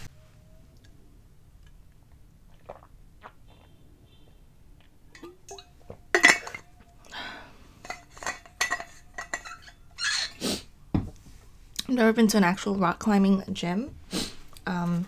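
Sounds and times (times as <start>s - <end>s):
metal bottle clinking: 5.1s - 6.9s, 7.8s - 10.4s
bottle and cap scraping: 5.2s - 6.8s, 7.8s - 10.4s.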